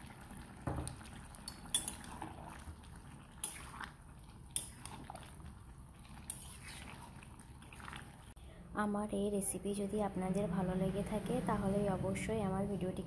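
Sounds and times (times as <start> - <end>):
metal spatula scraping a pan: 6.3 - 7.0.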